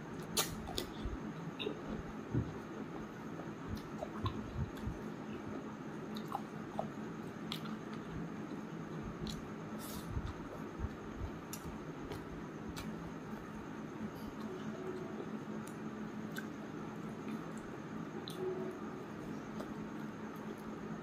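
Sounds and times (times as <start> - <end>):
faint low hum: 0.0 - 21.0
person chewing food: 0.2 - 14.7, 15.6 - 18.5, 19.4 - 20.7.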